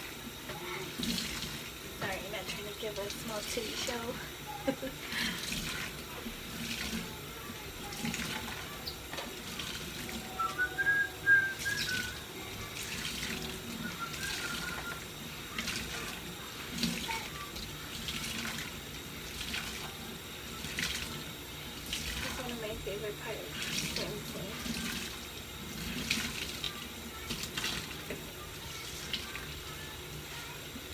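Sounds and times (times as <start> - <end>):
short high whistle-like tone: 10.3 - 12.2
sponge splashing and squelching: 11.6 - 20.0.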